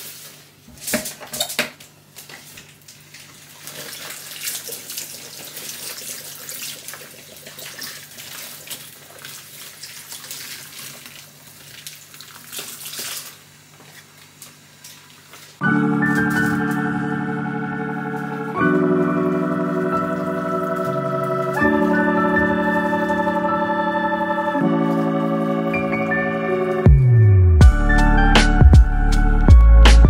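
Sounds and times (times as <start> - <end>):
leaves rinsed under water: 2.2 - 15.6.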